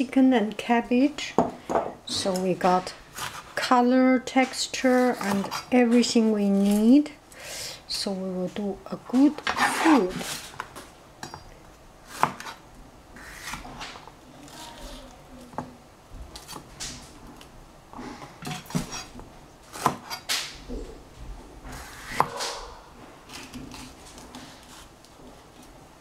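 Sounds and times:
knife slicing peppers: 2.4s - 3.7s, 12.1s - 12.6s, 18.6s - 20.6s, 21.7s - 25.7s.

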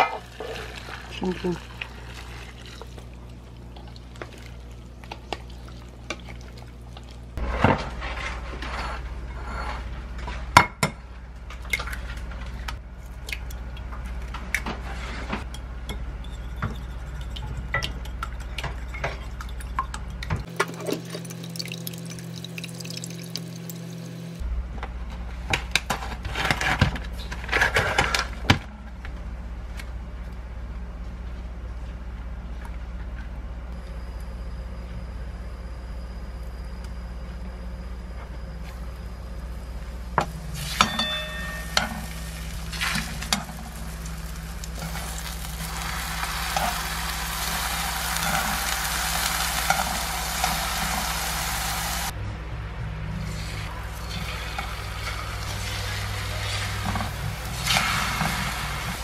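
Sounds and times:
liquid pouring over vegetables: 20.7s - 23.8s
utensils and dishes clinking: 40.6s - 43.6s.

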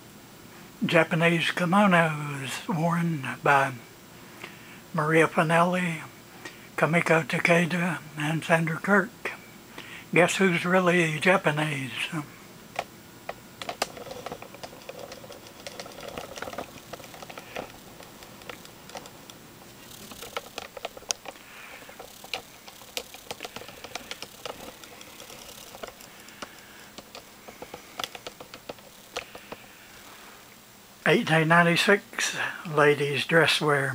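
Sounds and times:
low steady hiss: 0.0s - 33.9s
light clicks and taps: 12.8s - 29.6s.

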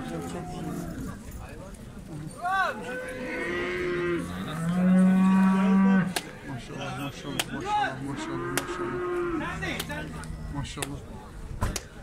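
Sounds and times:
cattle mooing: 2.9s - 6.1s, 8.0s - 9.8s.

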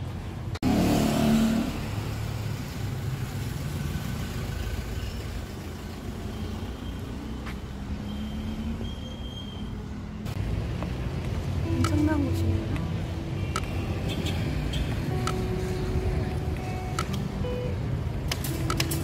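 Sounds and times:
low rumble of traffic: 0.0s - 19.0s
vehicle engine passing close: 0.6s - 5.7s.

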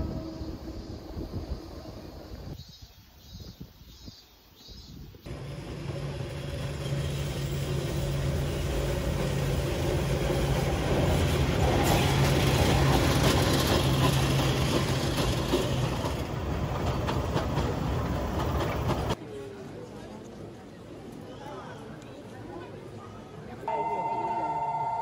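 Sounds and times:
train wheels clattering on rail: 5.3s - 19.2s.

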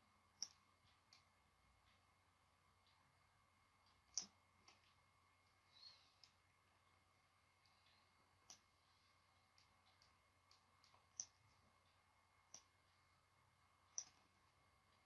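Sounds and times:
computer mouse clicking: 0.4s - 1.3s, 3.9s - 5.0s, 9.5s - 11.6s.

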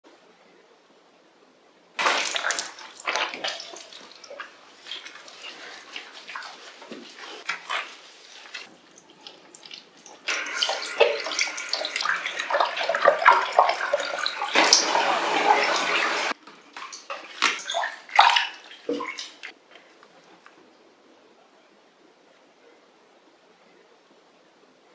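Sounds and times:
water splashing in a tub: 2.0s - 19.6s
shower head spraying water: 10.3s - 16.4s.

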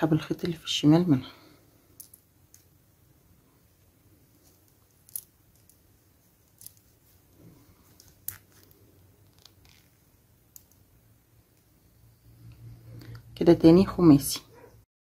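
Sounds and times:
crystal beads clicking together: 1.9s - 2.7s, 4.7s - 6.9s, 8.0s - 10.9s.

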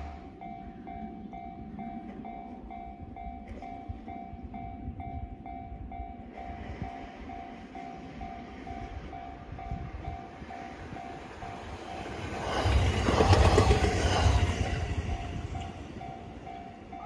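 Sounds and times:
electric train approaching: 0.0s - 17.0s
level-crossing alarm dinging: 0.0s - 17.0s.

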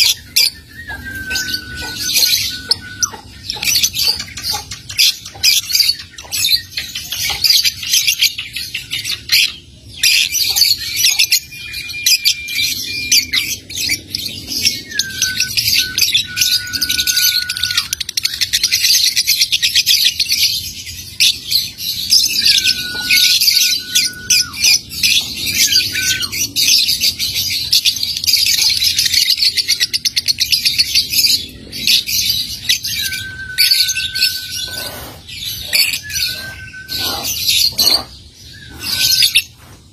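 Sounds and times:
short whistled bird notes: 0.6s - 3.3s, 32.9s - 39.4s.

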